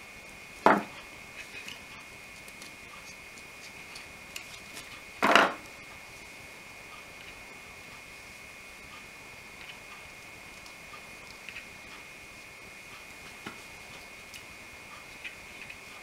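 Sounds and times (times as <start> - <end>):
faint high whine: 0.0 - 16.0
knocks on workbench: 0.7 - 0.9, 5.2 - 5.6.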